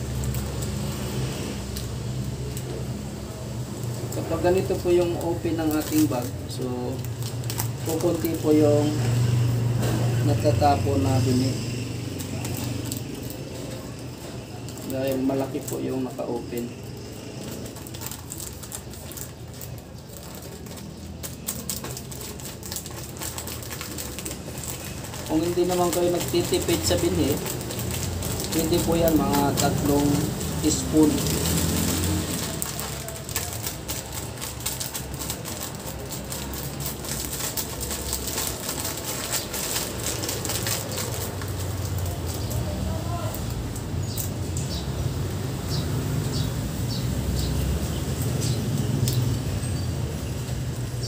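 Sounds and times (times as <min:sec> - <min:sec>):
plastic bag crinkling: 0:00.0 - 0:51.0.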